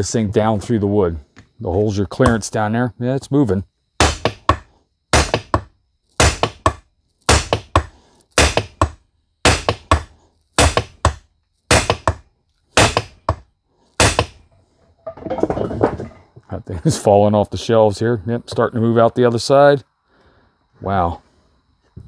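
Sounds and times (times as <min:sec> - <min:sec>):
hammer striking metal: 0:04.0 - 0:04.6, 0:05.2 - 0:12.2, 0:12.8 - 0:13.4, 0:14.0 - 0:14.4.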